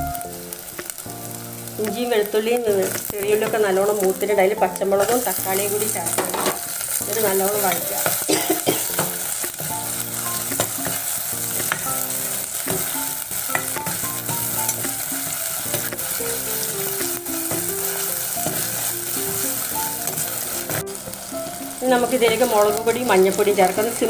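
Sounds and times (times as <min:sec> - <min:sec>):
vegetables sizzling in oil: 0:00.0 - 0:24.0.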